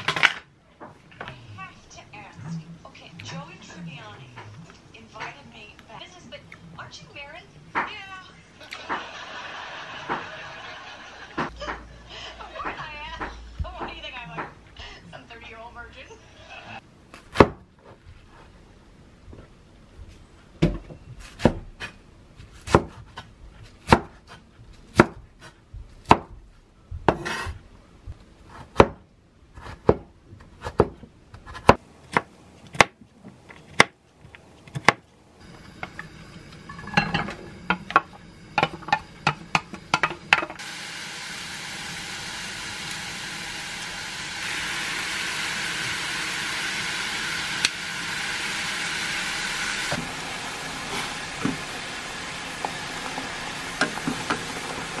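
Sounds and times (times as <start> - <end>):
cleaver chopping on wooden board: 29.6 - 33.0
vegetables sizzling in a pan: 39.9 - 55.0.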